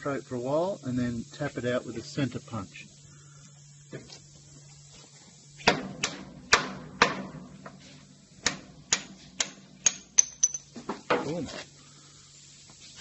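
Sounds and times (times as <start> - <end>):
hammer striking steel punch: 5.6 - 7.4, 8.4 - 10.6.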